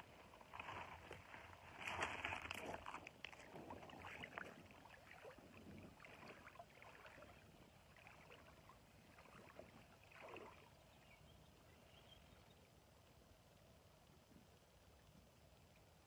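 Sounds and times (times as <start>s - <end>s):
river water lapping around legs: 0.0s - 11.3s.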